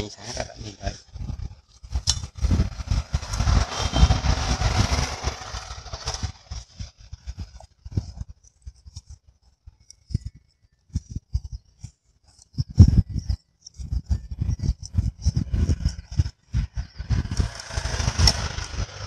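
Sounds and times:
dull low thumps: 0:12.5 - 0:18.5.

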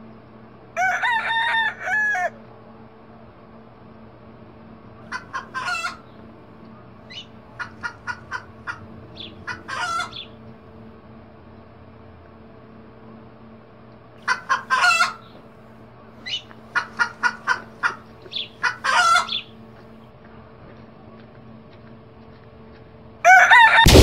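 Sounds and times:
rooster crowing: 0:00.8 - 0:02.4, 0:07.6 - 0:10.3, 0:23.2 - 0:24.0
chickens clucking: 0:05.0 - 0:10.6, 0:14.2 - 0:15.4, 0:16.2 - 0:20.0
low hum: 0:06.0 - 0:14.0.

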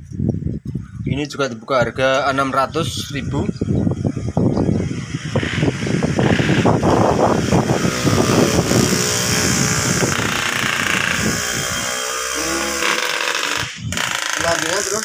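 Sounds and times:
motorcycle engine running: 0:05.2 - 0:12.9.

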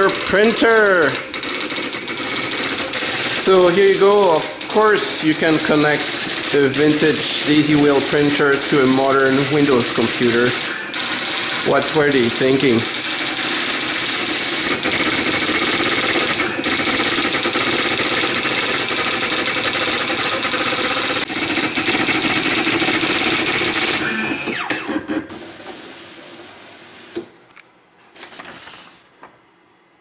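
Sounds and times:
daisy wheel printer clatter: 0:00.0 - 0:22.0.

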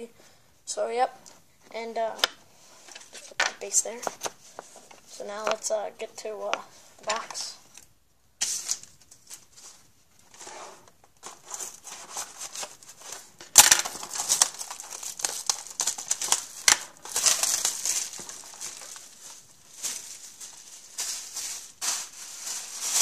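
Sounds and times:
plastic wrap rustling and tearing: 0:07.1 - 0:23.0.

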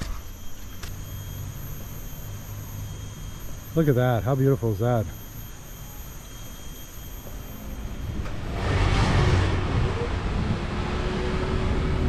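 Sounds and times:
faint insect chirring: 0:00.0 - 0:10.2
moving vehicle rumble: 0:07.6 - 0:12.0.

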